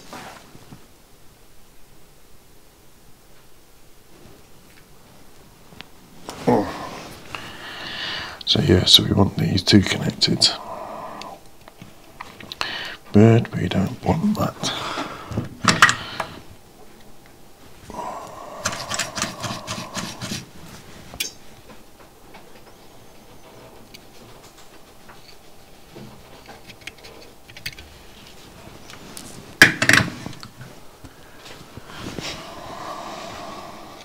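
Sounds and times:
light handling clicks and rubs: 23.3s - 29.5s.

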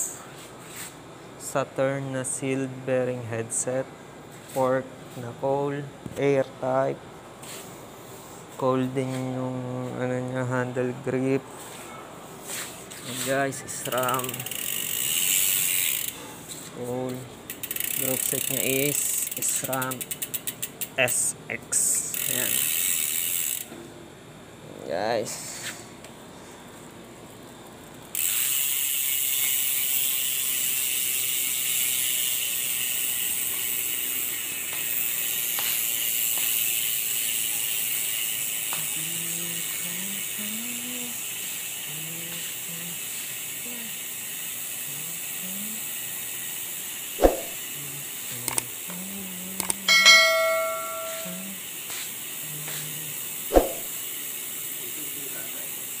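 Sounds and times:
bicycle freehub ratchet whirr: 12.4s - 23.9s, 26.7s - 56.0s
brief ringing tone: 49.9s - 51.6s
sharp click: 53.5s - 53.8s.

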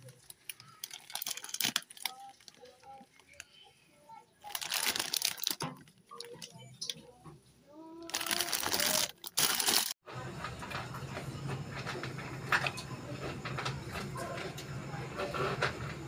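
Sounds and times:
plastic packaging crinkling: 0.0s - 3.6s, 4.4s - 6.5s, 8.1s - 10.0s.

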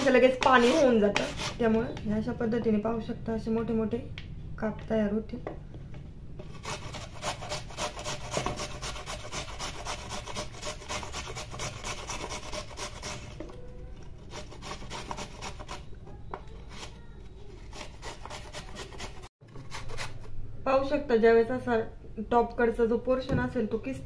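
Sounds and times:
carrot rasping on grater: 0.0s - 1.6s, 6.5s - 15.9s, 16.6s - 20.3s.

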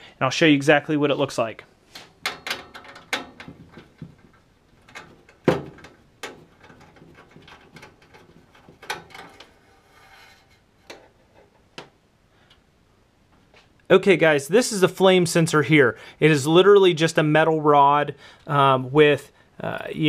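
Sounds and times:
clicks and light metal knocks: 1.9s - 12.7s.

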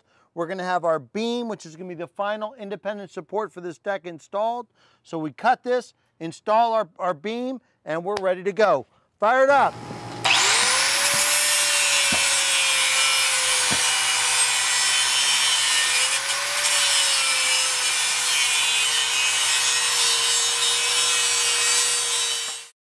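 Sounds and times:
angle grinder cutting steel pipe: 9.8s - 22.8s.

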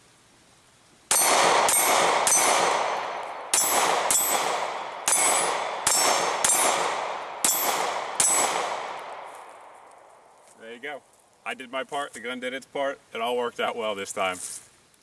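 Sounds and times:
steel targets ringing: 1.1s - 8.9s
pistol shots: 1.1s - 9.5s.

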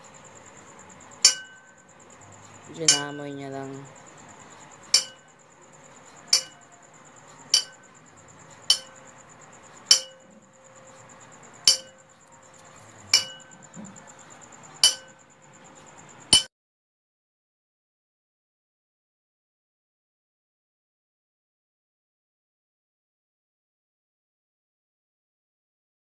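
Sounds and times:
metal object clinking: 7.5s - 7.9s, 8.7s - 9.0s.

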